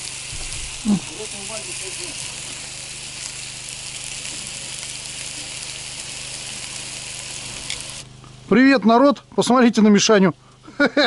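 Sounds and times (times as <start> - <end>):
fish sizzling on a grill: 0.0 - 8.7.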